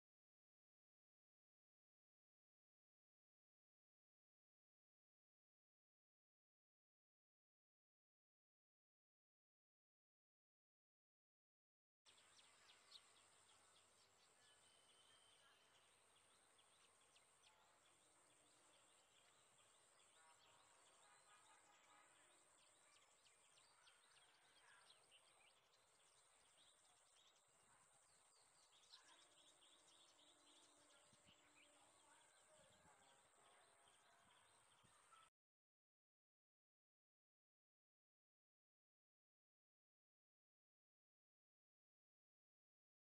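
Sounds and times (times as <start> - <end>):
bird chirps and twitters: 12.1 - 35.3.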